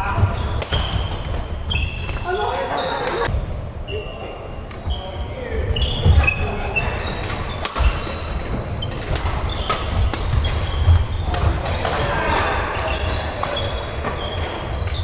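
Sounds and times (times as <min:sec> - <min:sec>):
shoes squeaking on court: 0:00.4 - 0:11.4
rackets striking shuttlecock: 0:07.6 - 0:15.0.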